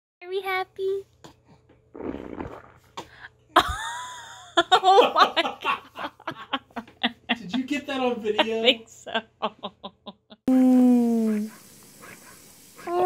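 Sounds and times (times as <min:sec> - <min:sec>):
baby farting: 0:01.9 - 0:03.1.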